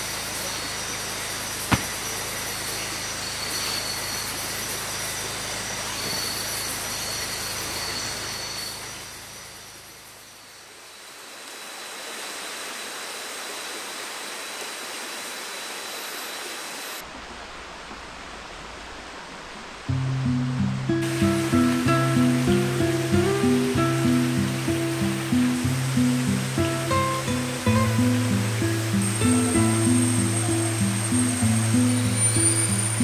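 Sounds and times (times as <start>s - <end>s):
rushing rocky river: 0.0s - 9.0s, 11.6s - 33.0s
slow background music: 19.9s - 33.0s.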